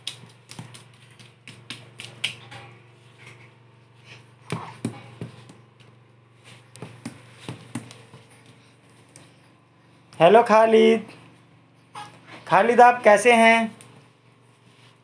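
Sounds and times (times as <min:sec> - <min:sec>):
bare feet tapping on tiles: 0:00.0 - 0:02.5, 0:04.5 - 0:05.9, 0:06.7 - 0:09.2
low steady hum: 0:00.0 - 0:15.0.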